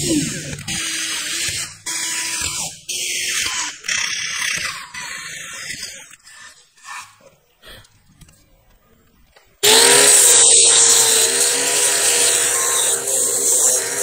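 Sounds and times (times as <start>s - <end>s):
cordless drill boring wood: 0.0s - 6.0s, 9.6s - 14.0s.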